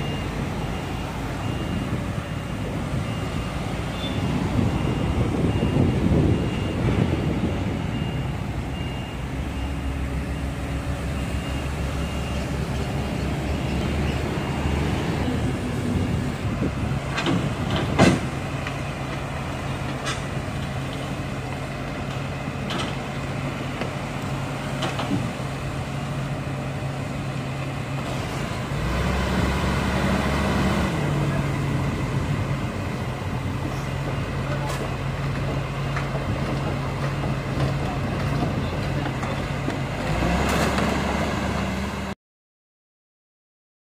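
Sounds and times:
excavator diesel engine: 0:00.0 - 0:42.2.

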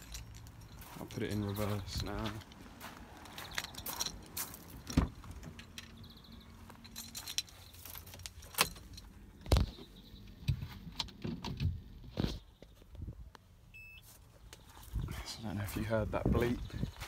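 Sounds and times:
car keys jangling: 0:00.0 - 0:01.6, 0:03.2 - 0:06.1, 0:06.8 - 0:09.2.

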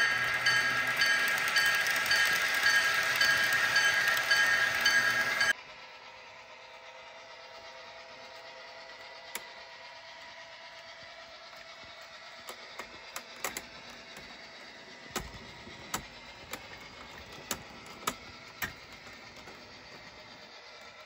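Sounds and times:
model train wheels clicking: 0:00.0 - 0:05.9, 0:06.8 - 0:21.0.

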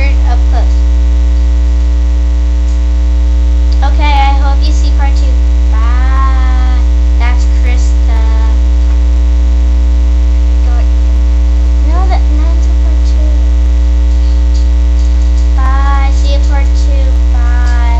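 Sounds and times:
electrical mains hum: 0:00.0 - 0:17.9
high gliding vocal sounds: 0:03.7 - 0:08.9, 0:11.8 - 0:17.9.

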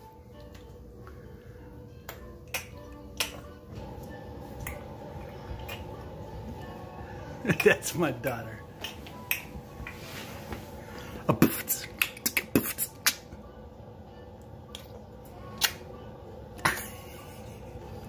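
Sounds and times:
beatboxing pops and clicks: 0:02.1 - 0:03.4, 0:08.8 - 0:09.5, 0:11.4 - 0:13.3, 0:15.6 - 0:15.8.

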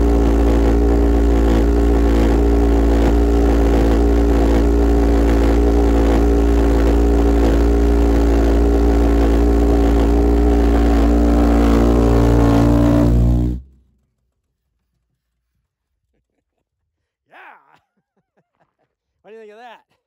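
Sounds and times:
pulsejet engine droning: 0:00.0 - 0:13.9.

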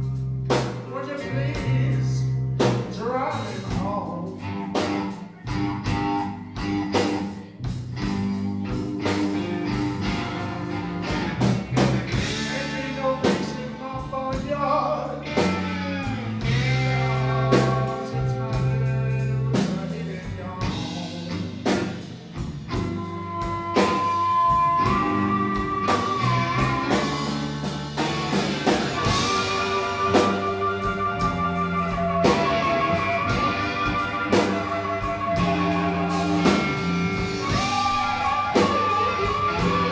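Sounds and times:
bass guitar: 0:00.0 - 0:39.9
drum kit: 0:00.0 - 0:39.9
electric guitar: 0:00.0 - 0:39.9
amplified harmonica solo: 0:22.7 - 0:39.9.

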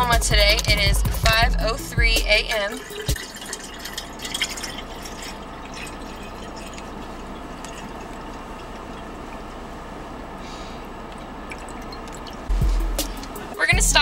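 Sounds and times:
water pouring into bottle: 0:02.6 - 0:09.6, 0:10.8 - 0:13.3.

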